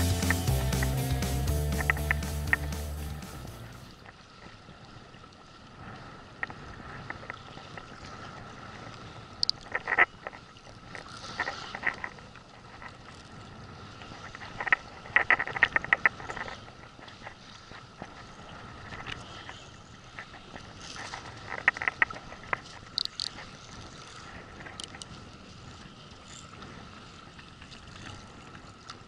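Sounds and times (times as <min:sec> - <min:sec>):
water noise: 0:00.0 - 0:29.0
wind: 0:00.0 - 0:29.0
fishing reel drag clicking: 0:22.9 - 0:23.4.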